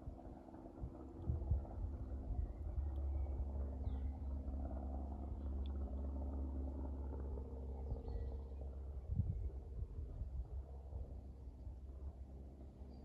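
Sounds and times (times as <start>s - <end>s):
low steady rumble: 0.0s - 13.0s
faint bird chirps: 7.8s - 8.5s.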